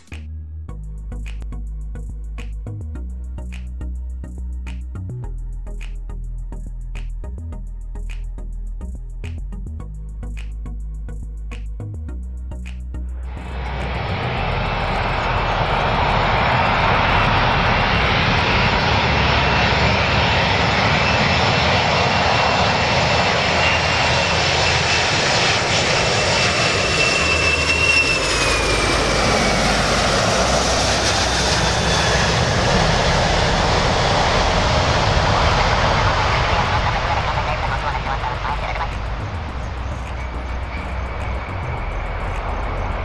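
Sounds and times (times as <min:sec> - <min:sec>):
high engine whine: 0:00.0 - 0:43.0
jet engine roar: 0:13.2 - 0:43.0.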